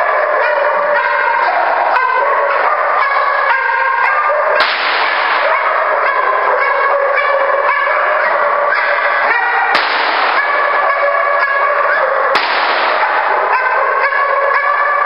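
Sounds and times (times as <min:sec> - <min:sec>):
dog barking: 0:00.0 - 0:15.0
sharp cracks: 0:04.6 - 0:05.8, 0:09.7 - 0:11.6, 0:12.3 - 0:13.3.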